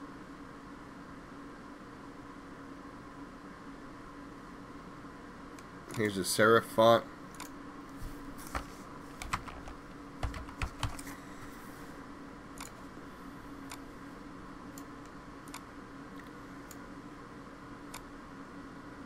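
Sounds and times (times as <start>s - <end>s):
faint steady hum: 0.0s - 19.0s
keyboard typing: 8.4s - 11.1s.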